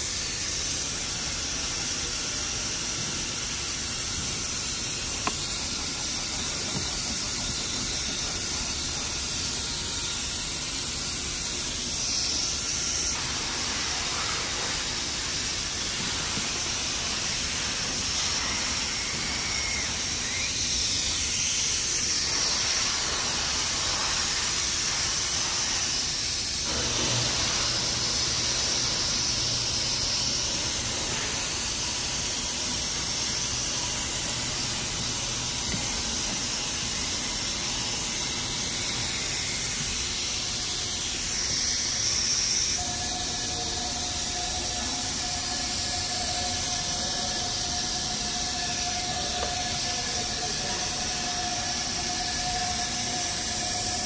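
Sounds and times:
steady hissing noise: 0.0s - 54.0s
steady tones: 28.5s - 54.0s.

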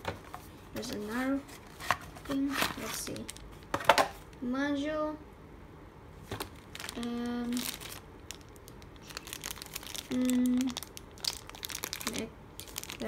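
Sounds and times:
cardboard packaging rustling: 0.8s - 4.2s, 6.3s - 13.0s.

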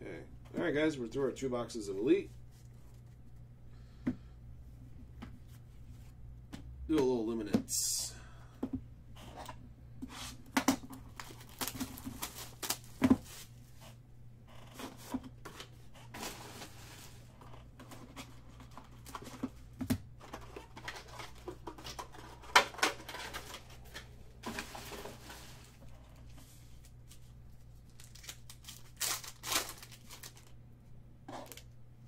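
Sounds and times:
shrink wrap crinkling and tearing: 10.8s - 13.5s, 26.7s - 30.6s, 31.4s - 31.8s
foil packs rustling: 10.8s - 13.6s, 15.6s - 17.3s, 20.2s - 25.9s, 26.5s - 30.6s.

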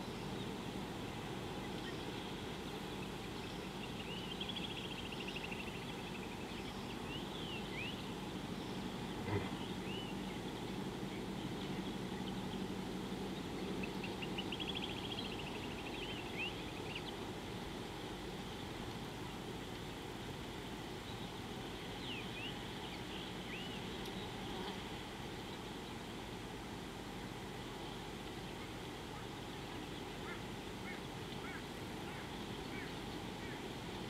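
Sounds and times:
birds calling: 0.0s - 17.4s, 27.3s - 34.0s
steady outdoor hiss: 0.0s - 34.0s.

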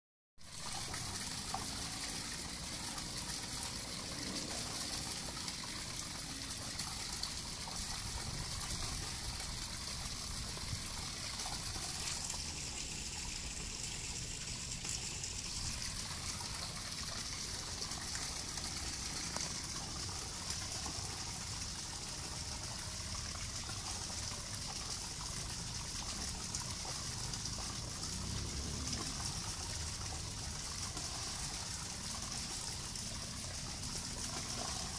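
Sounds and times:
constant high hiss: 0.4s - 34.9s.

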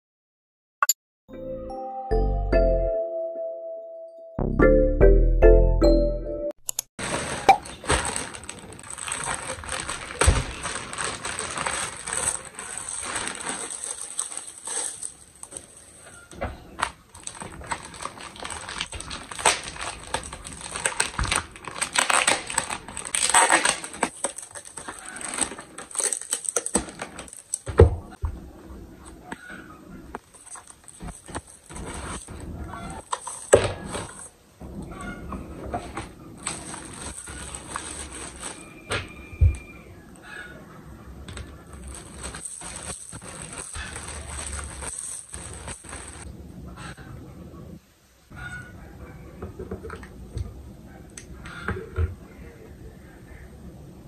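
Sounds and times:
plastic packaging crinkling: 7.0s - 16.1s, 16.7s - 27.7s, 30.2s - 34.3s, 35.8s - 39.2s, 41.2s - 46.3s.

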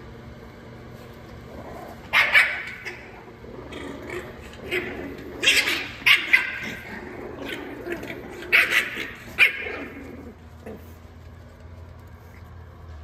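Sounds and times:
puppies yipping and barking: 2.1s - 3.4s, 4.2s - 10.4s.

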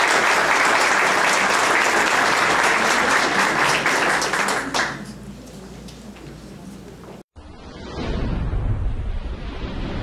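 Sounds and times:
crowd applause: 0.0s - 5.1s.

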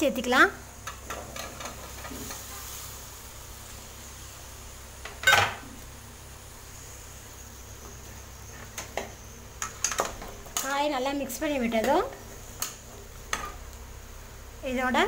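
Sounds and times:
metal spoon clanking on pan: 5.1s - 5.6s.

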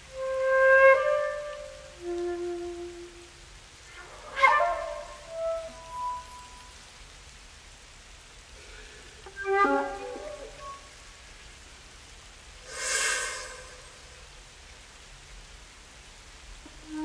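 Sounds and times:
solo flute: 0.0s - 6.8s, 9.3s - 11.0s, 12.7s - 14.2s, 16.6s - 17.0s.

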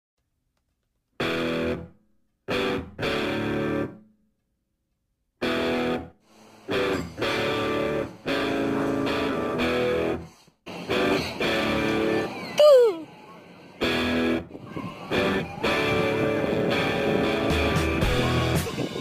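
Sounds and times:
electric guitar chords: 1.2s - 1.9s, 2.5s - 4.0s, 5.4s - 6.1s, 6.7s - 10.2s, 10.8s - 12.3s, 15.1s - 19.0s.

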